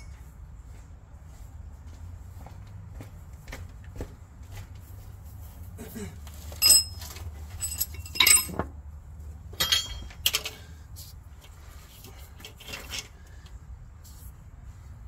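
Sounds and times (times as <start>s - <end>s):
metal hand tools clinking: 6.6s - 8.6s, 9.6s - 10.6s.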